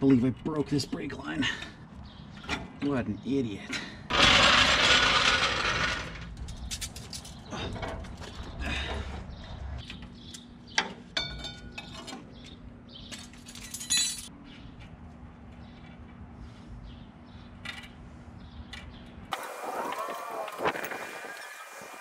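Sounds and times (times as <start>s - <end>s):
metal tools clinking: 6.4s - 8.4s, 13.1s - 14.3s.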